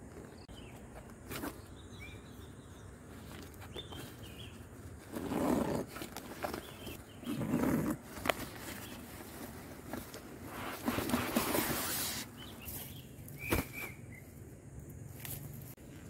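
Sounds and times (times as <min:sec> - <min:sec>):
backpack fabric rustling: 0:03.1 - 0:14.0.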